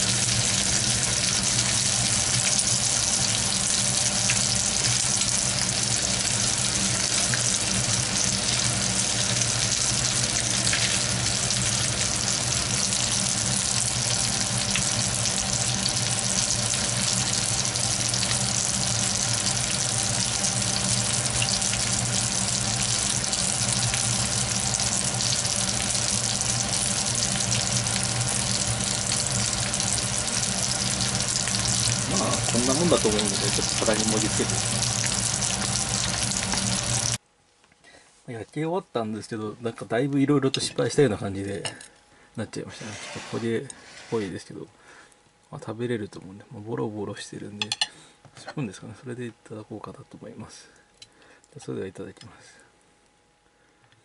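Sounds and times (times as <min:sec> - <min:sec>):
meat sizzling in a frying pan: 0:00.0 - 0:37.2.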